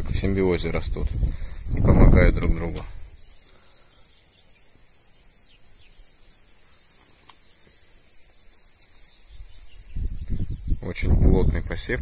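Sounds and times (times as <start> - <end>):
faint bird chirps: 3.0 - 11.1.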